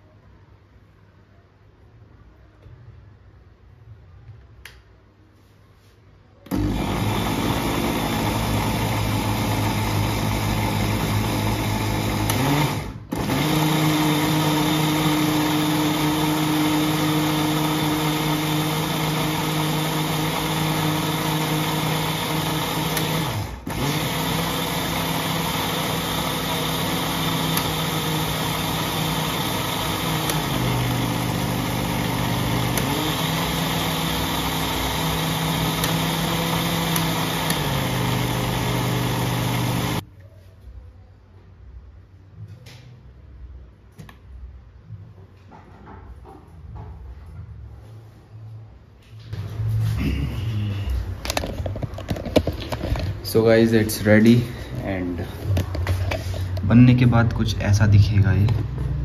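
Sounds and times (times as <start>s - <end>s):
mixer grinder motor whirring: 6.4s - 40.0s, 50.6s - 57.3s.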